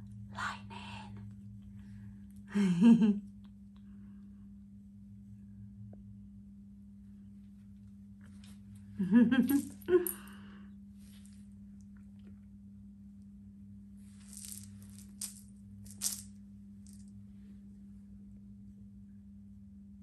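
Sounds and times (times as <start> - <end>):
beaded toy ball rattling: 14.2 - 17.0.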